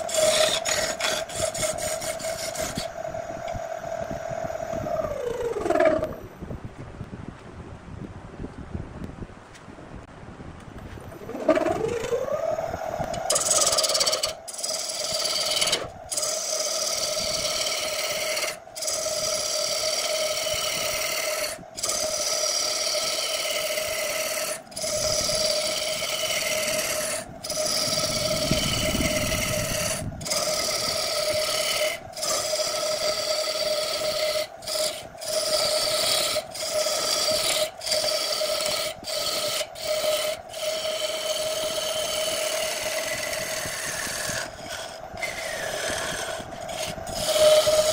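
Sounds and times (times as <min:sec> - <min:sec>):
gouge scraping wood: 0:00.0 - 0:02.9, 0:13.2 - 0:47.9
wood lathe hum: 0:00.0 - 0:06.2, 0:11.2 - 0:47.9.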